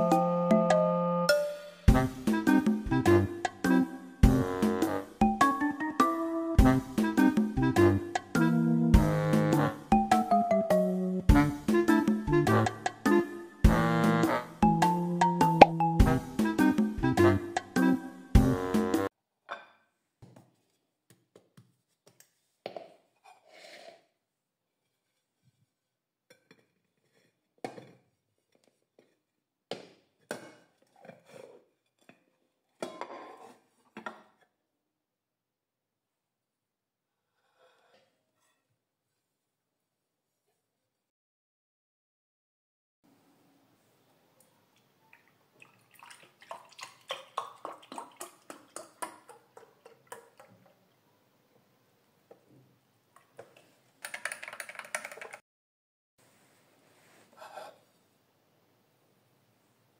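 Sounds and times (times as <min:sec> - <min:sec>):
milk glugging into a mug: 0:45.1 - 0:50.8.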